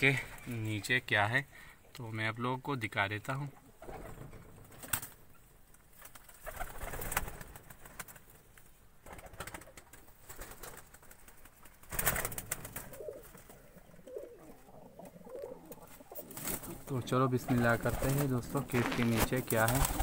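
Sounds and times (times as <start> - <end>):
pigeons cooing softly: 8.4 - 20.0
rustling and clicks from handling: 17.8 - 20.0.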